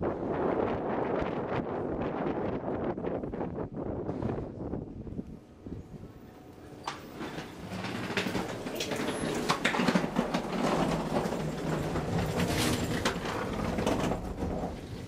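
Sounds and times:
elevator humming: 0:06.3 - 0:15.0.

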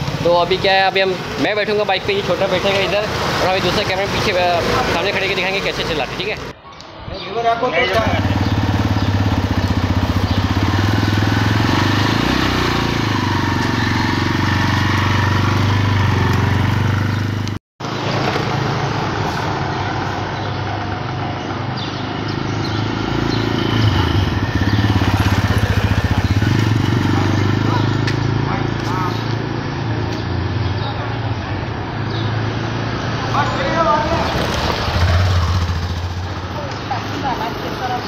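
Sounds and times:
motorcycle engine pulling away: 0:07.8 - 0:30.9, 0:31.6 - 0:38.0.

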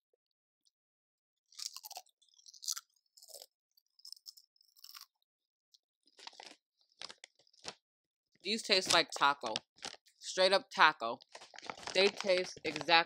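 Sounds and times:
person crunching chips: 0:01.5 - 0:05.1, 0:06.1 - 0:07.8, 0:11.2 - 0:13.0.

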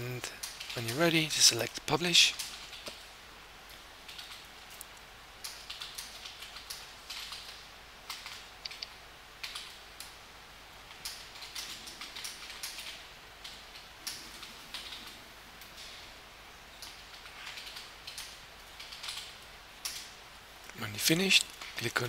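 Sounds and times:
keyboard keys clicking: 0:05.4 - 0:10.1, 0:10.9 - 0:15.2, 0:16.8 - 0:20.1.

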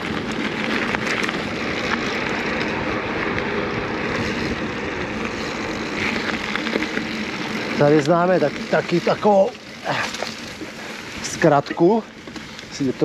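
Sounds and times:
wind over microphone: 0:00.0 - 0:09.0
bike tyres rolling on rough ground: 0:00.0 - 0:13.0.

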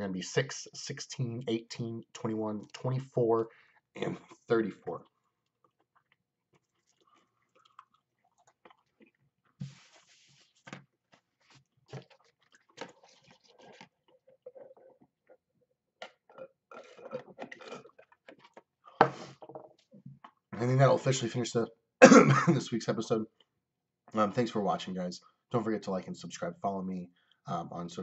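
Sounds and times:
person eating and drinking: 0:04.0 - 0:20.5
sipping through a straw: 0:06.6 - 0:10.7, 0:11.3 - 0:15.0.

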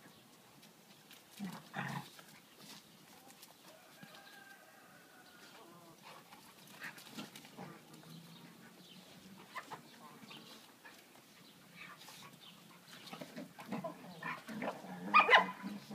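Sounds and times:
dogs play-fighting: 0:00.6 - 0:03.7, 0:05.9 - 0:15.9.

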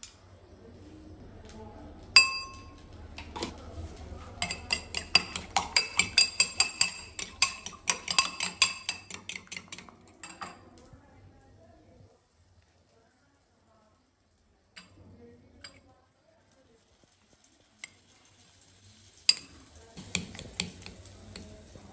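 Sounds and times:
loud ringing clink: 0:02.2 - 0:02.7
fork beating egg in glass bowl: 0:04.4 - 0:10.6, 0:19.3 - 0:21.6.

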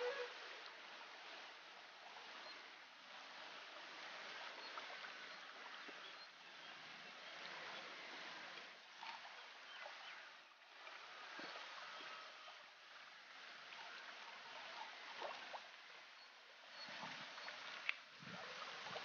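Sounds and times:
faint ticks and chirps: 0:04.4 - 0:19.0.

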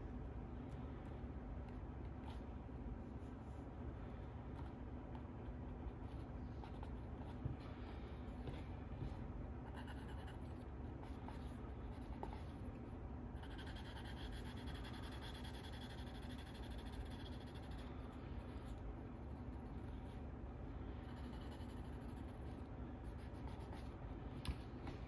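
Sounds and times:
pencil scratching on paper: 0:09.6 - 0:12.7, 0:13.4 - 0:20.2, 0:21.0 - 0:24.0.

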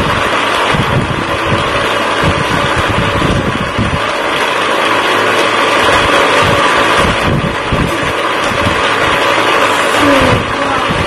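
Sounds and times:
toy motor running: 0:00.0 - 0:11.0.

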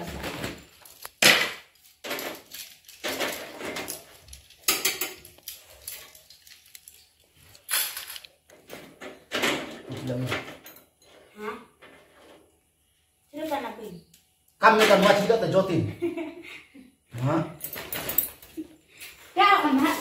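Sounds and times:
wooden skewers clattering: 0:00.0 - 0:10.8.

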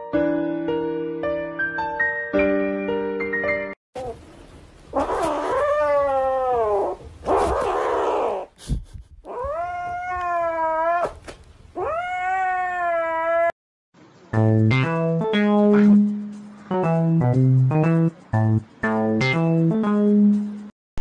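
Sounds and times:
kitten yowling: 0:05.0 - 0:08.5, 0:09.3 - 0:11.2, 0:11.8 - 0:13.6.

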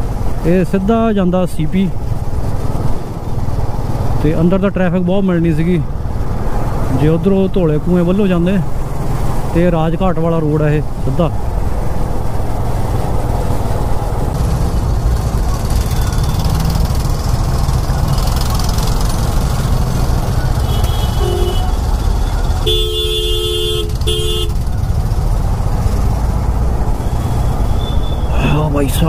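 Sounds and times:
road traffic noise: 0:00.0 - 0:29.0
motorcycle engine: 0:11.4 - 0:28.3
vehicle horns honking: 0:15.8 - 0:16.8, 0:20.6 - 0:24.7, 0:27.0 - 0:28.4.

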